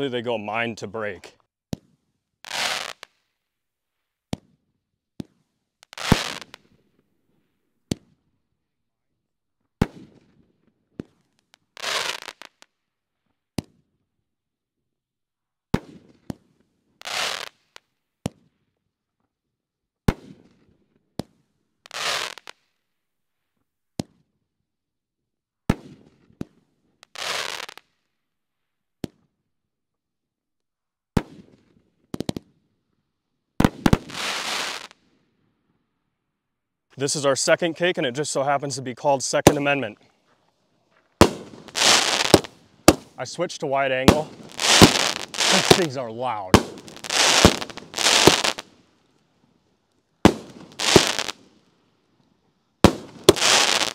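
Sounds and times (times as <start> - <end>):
firework bangs: 6.0 - 6.6, 33.6 - 35.0, 39.3 - 39.9, 41.2 - 48.8, 50.2 - 51.5, 52.8 - 53.9
hissing crackling firework burst: 6.0 - 6.6, 33.9 - 35.0, 41.2 - 43.2, 44.0 - 48.7, 50.3 - 51.4, 52.9 - 53.9.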